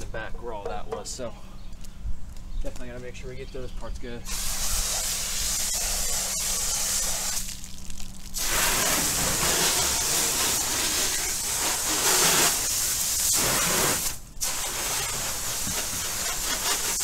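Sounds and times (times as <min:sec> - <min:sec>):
car wash spray hissing: 0:04.3 - 0:07.6, 0:08.4 - 0:17.0.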